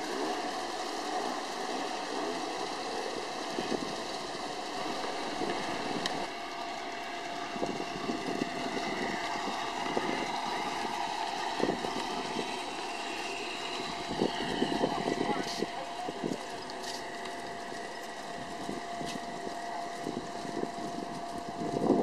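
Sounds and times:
model train motor hum: 0.0 - 22.0
wheels clicking over rail joints: 0.0 - 22.0.

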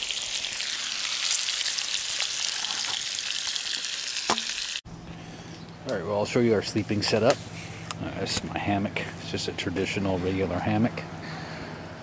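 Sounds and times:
bacon sizzling in a frying pan: 0.0 - 4.8.

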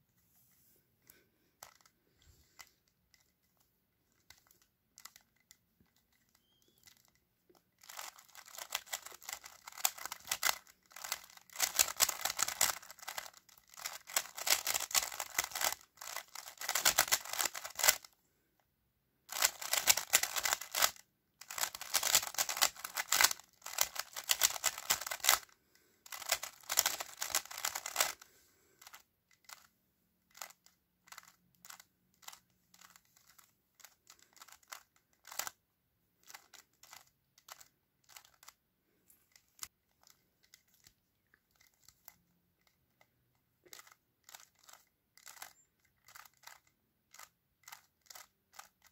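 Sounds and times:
puzzle cube clicking: 2.5 - 18.1, 19.3 - 29.7, 30.3 - 35.6, 36.2 - 38.6, 43.7 - 48.9.

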